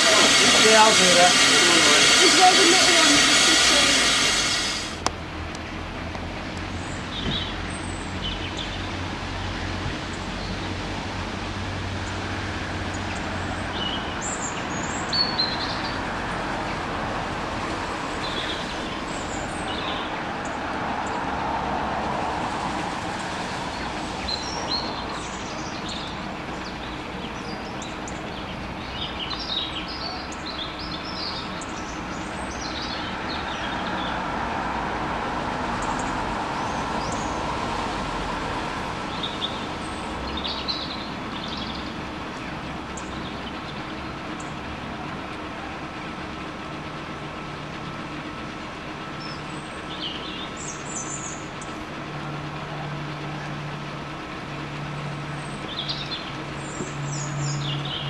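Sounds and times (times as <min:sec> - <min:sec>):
small birds chirping: 0:23.7 - 0:34.1, 0:49.1 - 0:51.8, 0:55.4 - 0:58.0.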